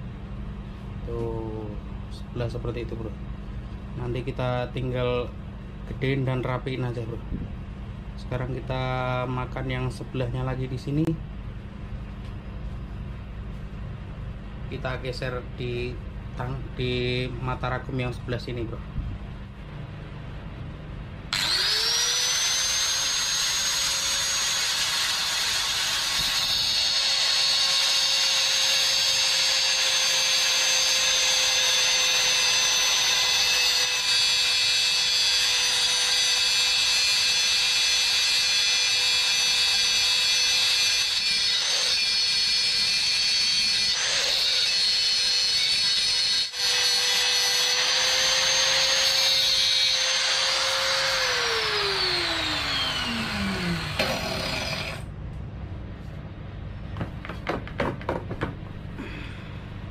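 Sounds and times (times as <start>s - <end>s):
angle grinder whining: 21.3s - 55.1s.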